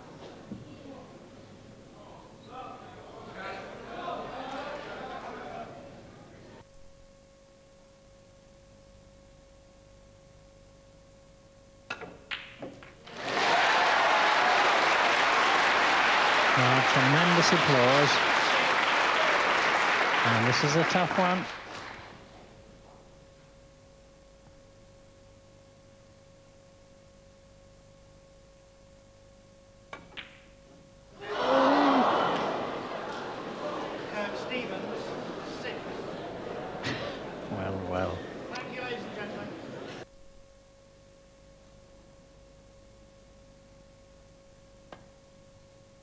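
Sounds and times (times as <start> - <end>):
faint steady hum: 0.0 - 46.0
crowd applause: 2.5 - 6.5, 13.0 - 22.6, 31.2 - 40.0
billiard balls clicking: 11.9 - 13.0.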